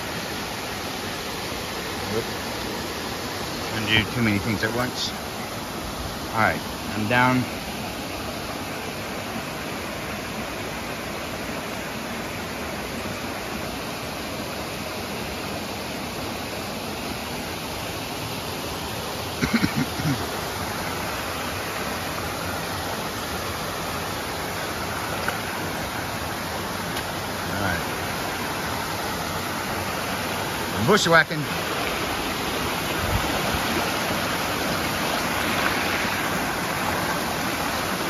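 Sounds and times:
creek water rushing over rocks: 0:00.0 - 0:38.0.

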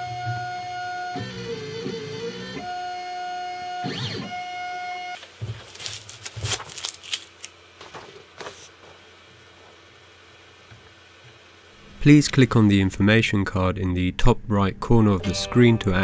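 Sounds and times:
stepper motors whining: 0:00.0 - 0:05.2
tape crackling and peeling: 0:05.2 - 0:08.8.

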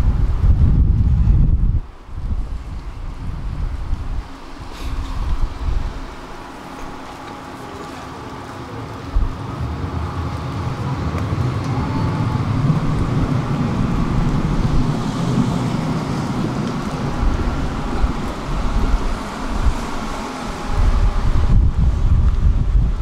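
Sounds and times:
tram wheels rumbling on rails: 0:00.0 - 0:23.0.

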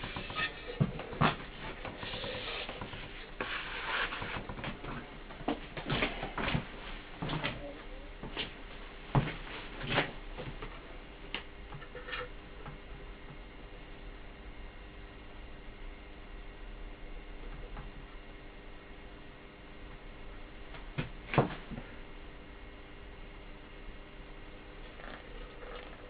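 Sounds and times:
short scraping noises: 0:00.0 - 0:04.4.

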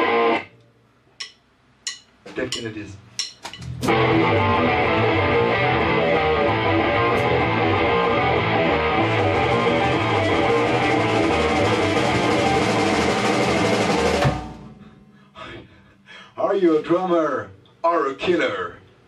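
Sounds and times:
rock band playing: 0:00.0 - 0:00.5, 0:03.6 - 0:15.3
strummed electric guitars: 0:00.0 - 0:00.5, 0:03.6 - 0:15.7.

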